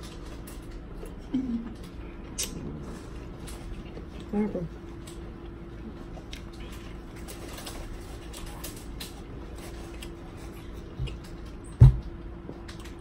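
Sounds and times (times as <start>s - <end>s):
steady low hum: 0.0s - 13.0s
soft low thump: 11.8s - 12.0s.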